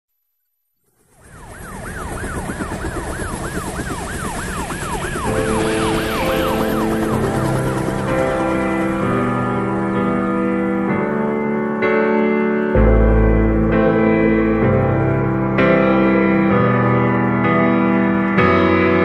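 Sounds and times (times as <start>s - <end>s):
siren-like wailing effect: 0.9s - 10.8s
synth and keyboard tones: 2.0s - 18.6s.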